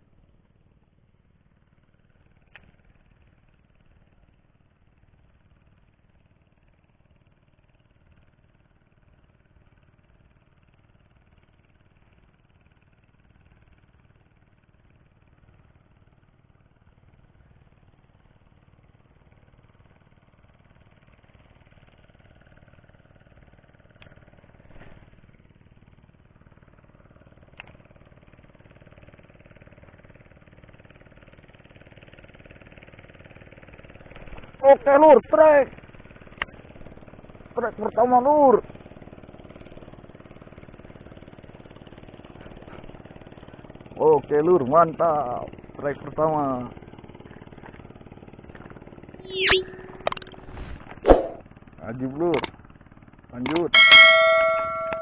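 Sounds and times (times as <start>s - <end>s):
short sharp clicks: 53.5s - 55.0s.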